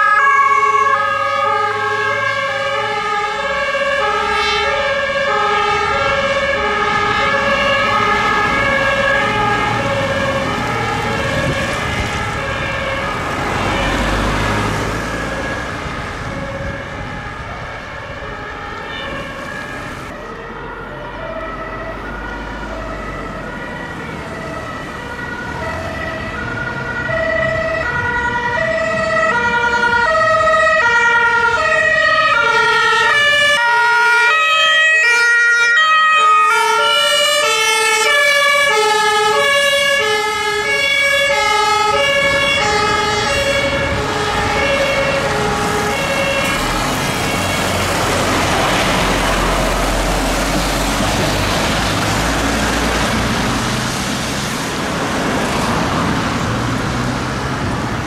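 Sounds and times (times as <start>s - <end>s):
two-tone emergency sirens: 0.0s - 58.0s.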